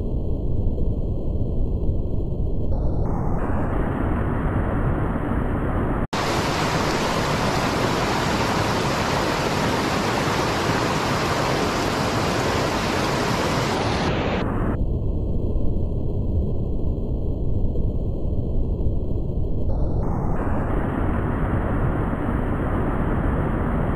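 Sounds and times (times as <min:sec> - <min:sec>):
stream rushing over stones: 0:06.2 - 0:14.4.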